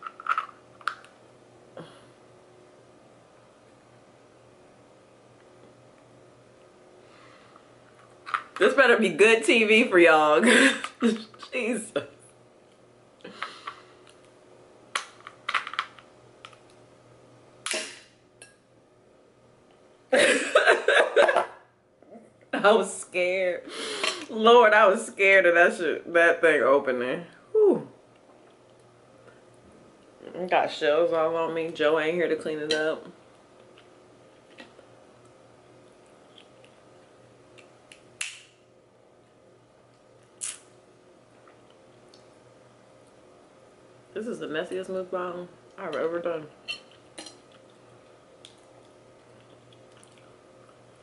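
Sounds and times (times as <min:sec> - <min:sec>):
metal cracker laid down: 0:00.0 - 0:01.0, 0:15.0 - 0:16.0.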